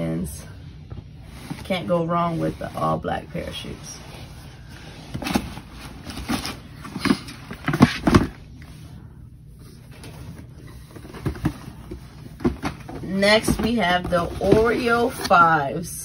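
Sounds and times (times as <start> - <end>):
shoeboxes knocking and thumping: 5.1 - 8.4, 10.0 - 15.5.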